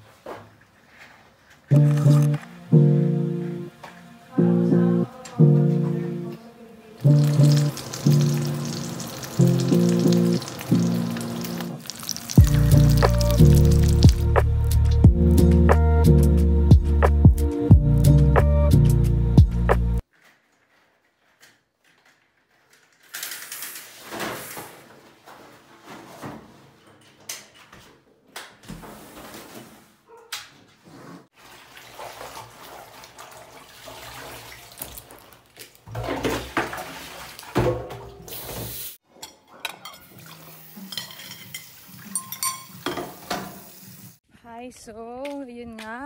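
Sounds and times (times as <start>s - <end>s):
wet clothes being handled: 7.0s - 15.0s, 31.4s - 37.6s
tap water running: 7.0s - 15.1s, 31.3s - 39.0s, 40.0s - 44.2s
cutlery and plate clinking: 39.1s - 43.6s.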